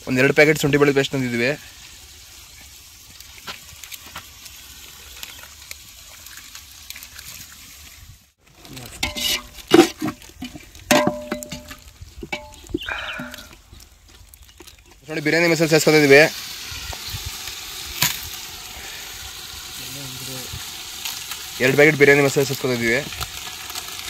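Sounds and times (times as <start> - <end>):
food sizzling in a pot: 0.0 - 13.7, 14.7 - 24.0
stirring scrapes: 6.1 - 15.1
utensil clinking on metal pot: 8.9 - 13.5.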